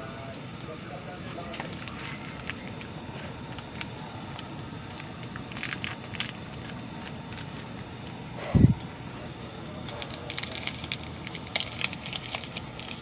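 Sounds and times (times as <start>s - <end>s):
sharp crackles of cooking: 1.7s - 8.3s, 9.8s - 13.0s.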